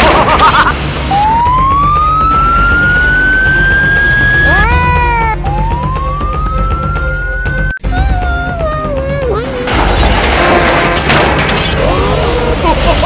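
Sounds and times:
background music: 0.0 - 13.0
police car siren wailing: 1.0 - 4.8, 5.4 - 7.8.

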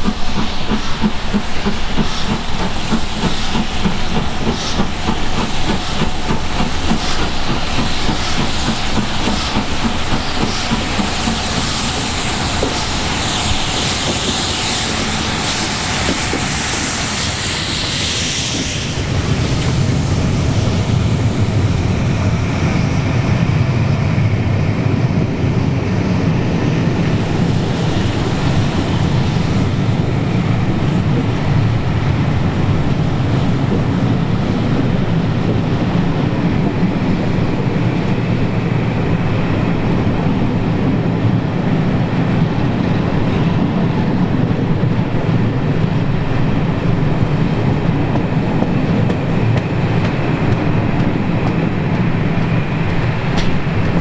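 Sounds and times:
steam hissing: 0.0 - 36.0
train coaches rumbling over rails: 0.0 - 54.0.

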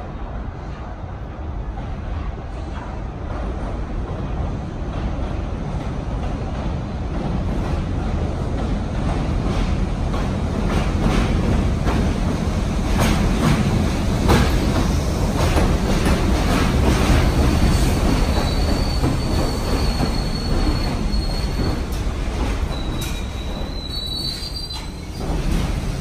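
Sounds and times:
subway train rumbling: 0.0 - 26.0
high brake squeal: 17.7 - 21.8, 22.7 - 25.4.

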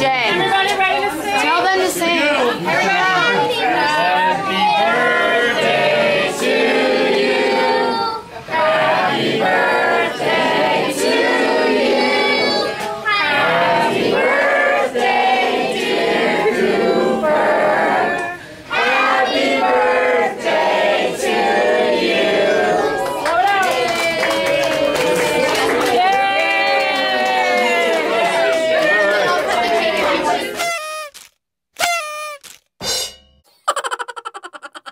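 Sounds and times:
group of voices singing: 2.5 - 23.2.

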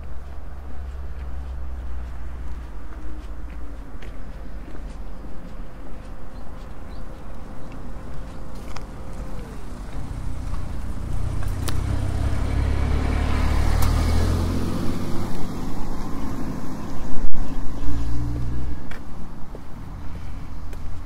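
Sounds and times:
car engine passing: 7.8 - 20.6.

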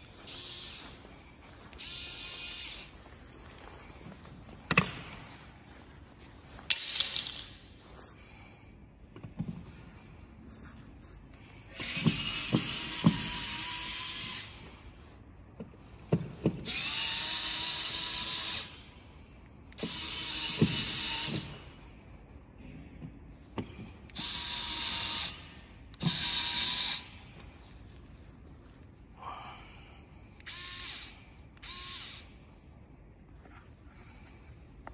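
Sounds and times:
electric screwdriver whining: 11.8 - 14.5, 16.6 - 18.7, 19.7 - 21.6, 24.1 - 25.4, 26.0 - 27.0, 30.4 - 32.3.

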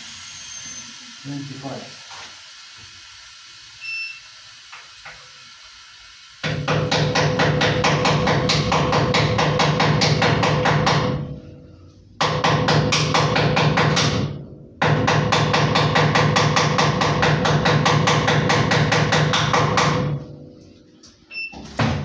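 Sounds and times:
short electronic beep: 3.8 - 4.3.

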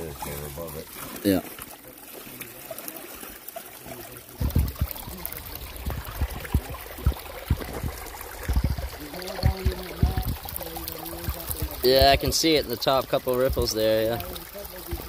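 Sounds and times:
water running through sluice: 0.0 - 15.0
low thuds: 4.4 - 12.4.

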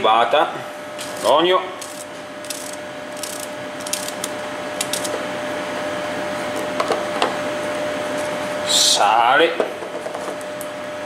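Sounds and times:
background hum: 0.0 - 11.0.

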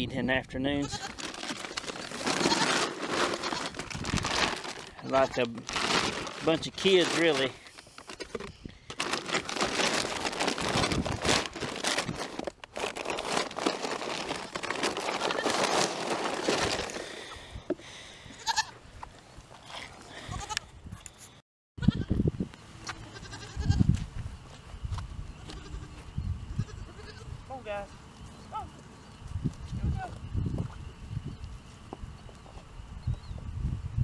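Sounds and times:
goats bleating: 0.8 - 3.8, 18.4 - 18.8, 22.9 - 23.8, 25.4 - 26.0, 26.6 - 27.3
plastic sacks rustling: 1.0 - 17.4.

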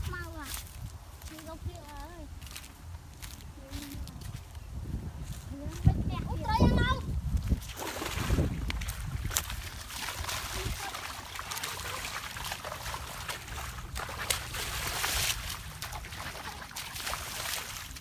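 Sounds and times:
water splashing and sloshing: 6.1 - 18.0.

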